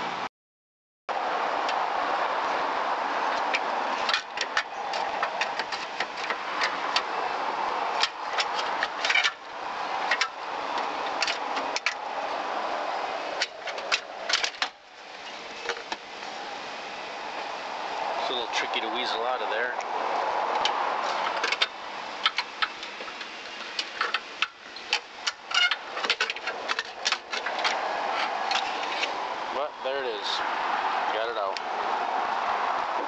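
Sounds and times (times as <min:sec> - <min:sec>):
metallic clicks and knocks: 0:20.6 - 0:29.1.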